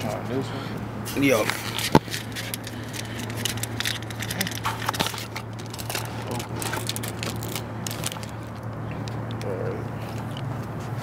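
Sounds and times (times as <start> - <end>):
steady low hum: 0.0 - 11.0
plastic wrapper crinkling: 1.4 - 8.7.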